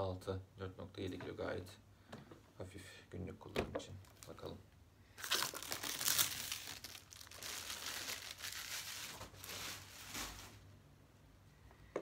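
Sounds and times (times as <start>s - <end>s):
plastic wrapping crinkling: 4.0s - 4.5s, 5.2s - 10.7s.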